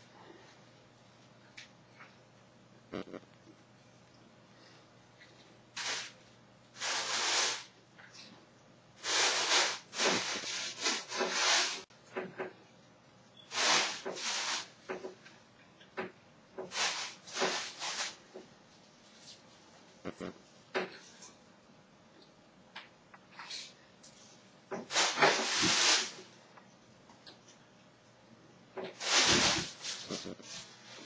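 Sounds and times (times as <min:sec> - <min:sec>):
leafy greens rustling: 0:28.9 - 0:31.0.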